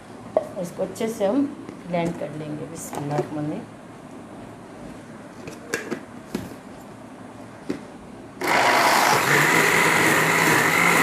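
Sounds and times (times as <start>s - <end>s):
blender motor whining: 8.4s - 11.0s.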